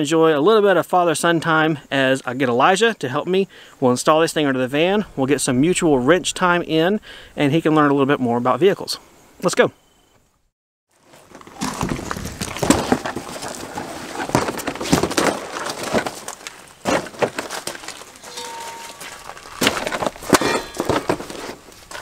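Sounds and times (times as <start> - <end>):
knocks scrapes and rustles: 11.0 - 22.0.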